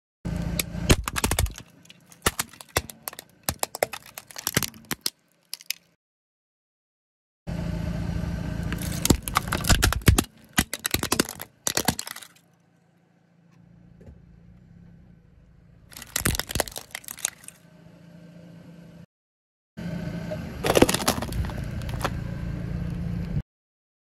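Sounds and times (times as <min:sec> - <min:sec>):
car engine hum: 0:00.3 - 0:04.9, 0:07.5 - 0:19.0, 0:19.8 - 0:23.4
plastic toy cracking under tyre: 0:00.6 - 0:06.0, 0:08.7 - 0:12.4, 0:15.9 - 0:17.6, 0:20.6 - 0:22.2.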